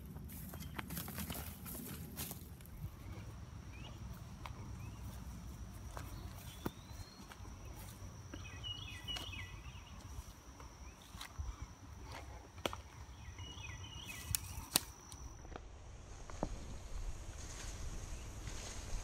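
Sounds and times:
footsteps through grass and brush: 0.0 - 13.0, 16.3 - 19.0
bird chirping: 3.0 - 11.7, 12.9 - 15.3.

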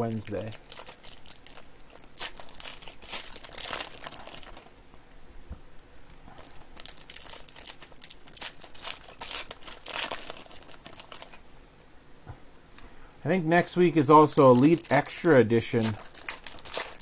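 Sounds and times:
foil wrappers crinkling and tearing: 0.0 - 4.8, 6.4 - 11.4, 14.0 - 17.0.

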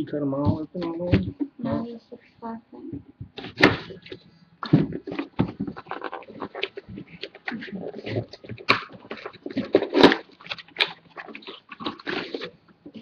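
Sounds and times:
cardboard rustling: 3.1 - 13.0
plastic wrap crinkling: 3.4 - 13.0.

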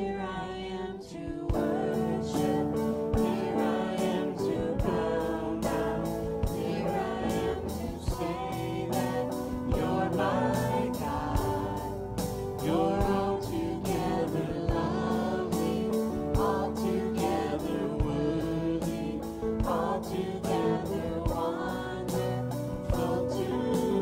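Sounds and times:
bass guitar: 0.0 - 24.0
electric guitar: 0.0 - 24.0
voices singing together: 0.0 - 24.0
drum kit beat: 1.5 - 24.0.

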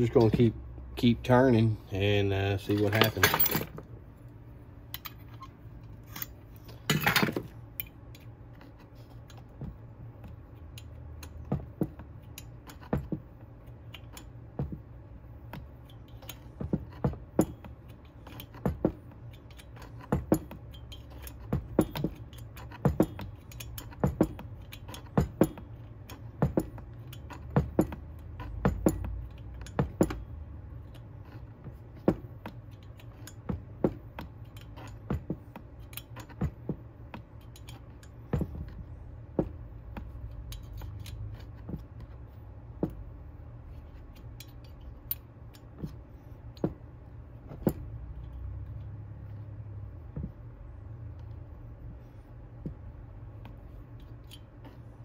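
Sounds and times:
hand tool clicking on screw: 19.2 - 30.2.

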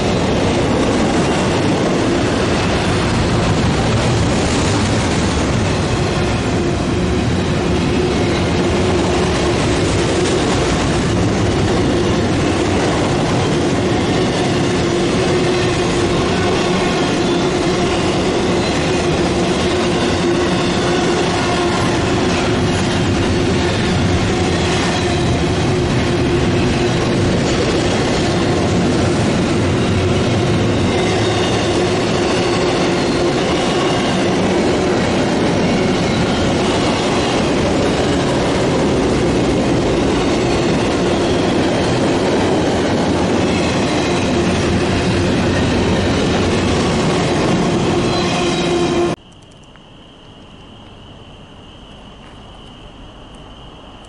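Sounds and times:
freight train wheels rolling on rail: 0.0 - 54.0
high wheel squeal: 12.0 - 38.9, 39.7 - 49.2.

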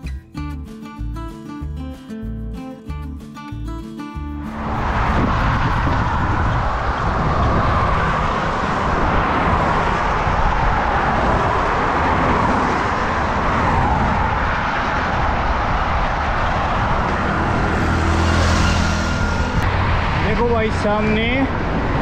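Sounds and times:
motor traffic: 4.4 - 22.0
tyres on asphalt: 4.4 - 22.0
wind over camera: 4.5 - 22.0.

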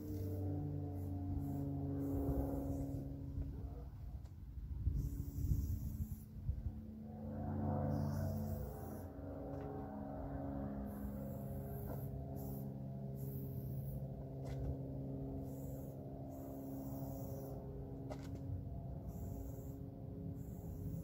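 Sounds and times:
low hum of held tones: 0.0 - 21.0
spray paint can hissing: 11.2 - 14.0, 15.4 - 17.5, 19.1 - 19.8.

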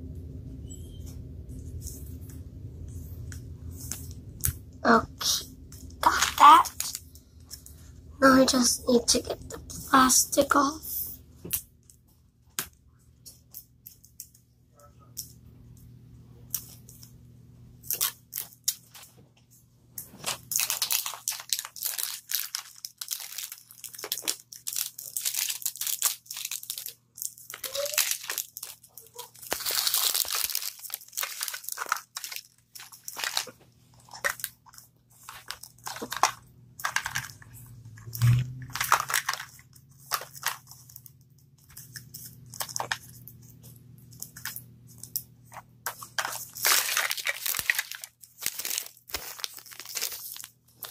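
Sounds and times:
plastic wrapping crinkling: 5.2 - 7.9, 17.8 - 19.2, 20.0 - 50.9.

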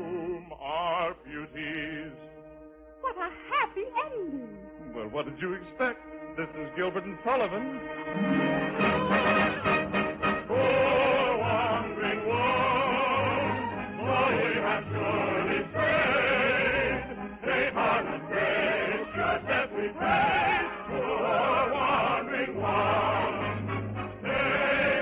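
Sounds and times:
choir singing operatic music: 0.0 - 2.5, 8.1 - 25.0.

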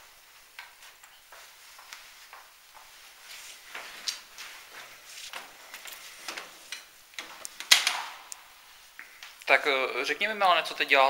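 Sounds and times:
equipment handling rustles and clicks: 0.5 - 8.3.

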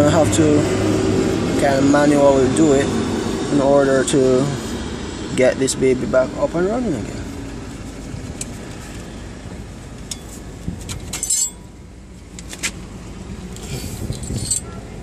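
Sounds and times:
metallic tool clinks: 11.1 - 11.7.

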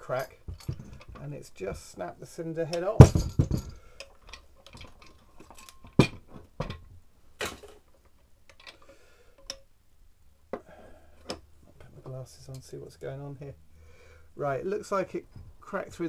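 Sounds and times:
metal engine parts knocking: 2.8 - 3.8.

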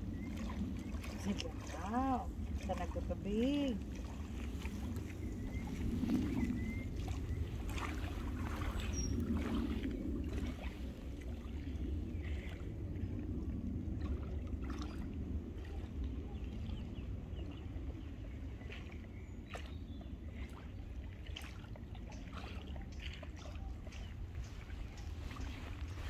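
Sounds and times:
waves lapping at shore: 0.0 - 26.0
wind rumble on microphone: 0.0 - 26.0
bird chirps: 8.9 - 9.2.

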